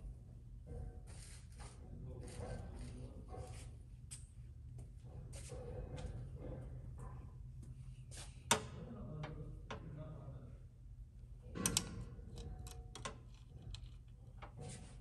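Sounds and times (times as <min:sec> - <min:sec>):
steady low hum: 0:00.0 - 0:15.0
clicks and knocks of parts handled: 0:11.5 - 0:15.0.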